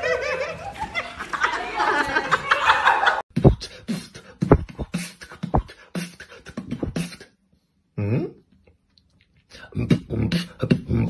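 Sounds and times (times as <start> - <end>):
beatboxing drum beat: 3.3 - 7.3, 9.6 - 11.0.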